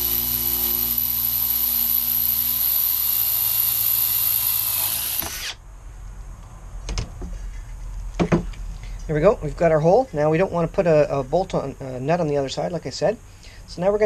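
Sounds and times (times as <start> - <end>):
cordless drill boring through metal: 0.0 - 5.6.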